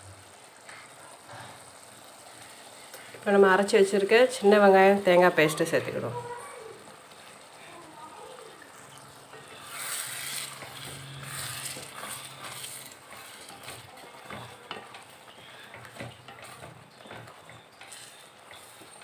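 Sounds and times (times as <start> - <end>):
wet churning and scraping: 8.6 - 19.0
spatula tapping metal pot: 10.2 - 19.0.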